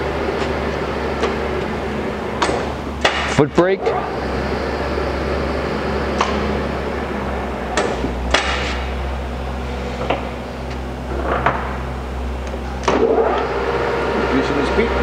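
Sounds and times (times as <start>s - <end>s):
lathe humming: 3.8s - 7.7s, 12.0s - 15.0s.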